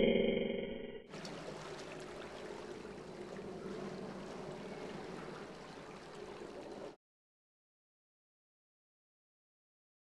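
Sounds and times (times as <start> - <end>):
small waves lapping: 1.1 - 7.0
soft ticks and splashes: 1.1 - 7.0.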